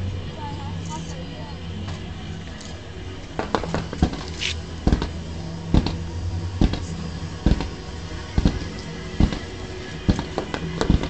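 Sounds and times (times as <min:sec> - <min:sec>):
fireworks bangs: 0:03.4 - 0:11.0.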